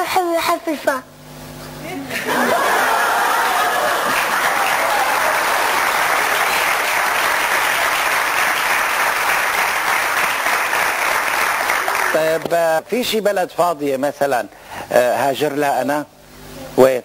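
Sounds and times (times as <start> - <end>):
audience applauding: 2.3 - 12.5.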